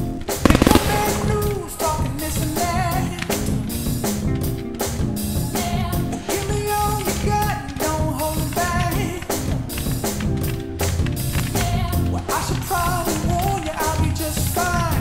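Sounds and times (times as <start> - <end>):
steady drum beat: 0.5 - 1.9
pop song with singer: 0.5 - 3.6, 5.3 - 10.0, 11.4 - 15.0.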